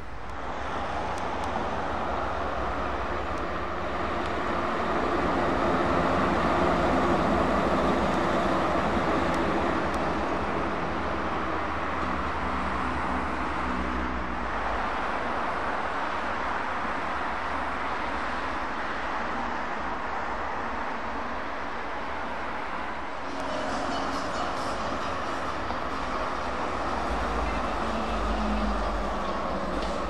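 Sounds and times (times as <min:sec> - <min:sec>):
heavy trucks driving past: 0:00.0 - 0:30.0.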